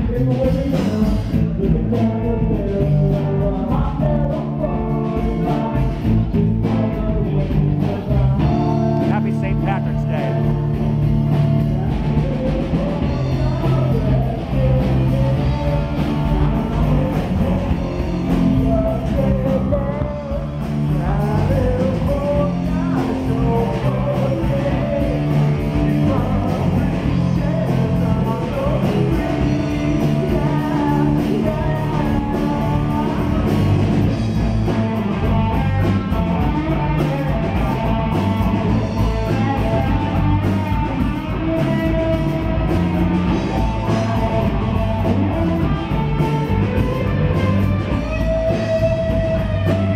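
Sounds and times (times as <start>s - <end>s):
person singing: 0.0s - 10.6s, 11.3s - 49.9s
live rock band playing: 0.0s - 49.9s.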